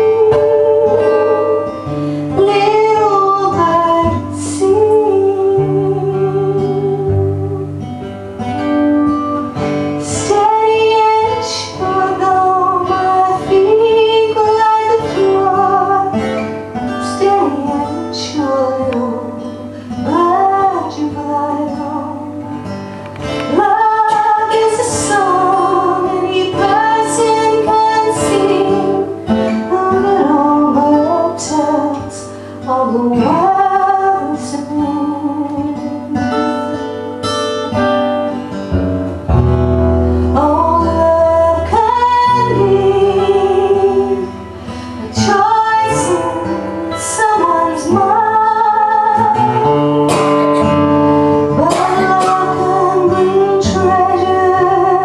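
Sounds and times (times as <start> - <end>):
woman singing: 0.0 - 38.5, 40.2 - 55.0
acoustic guitar: 0.0 - 55.0.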